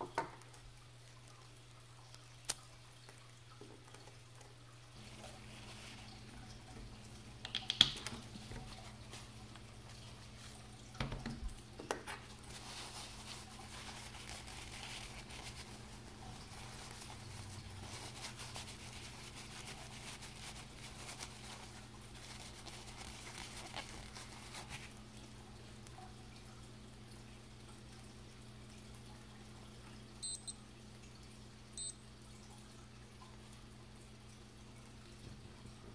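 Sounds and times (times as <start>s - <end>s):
paper towel rustling on metal: 5.0s - 6.5s, 8.2s - 10.8s, 12.0s - 25.0s.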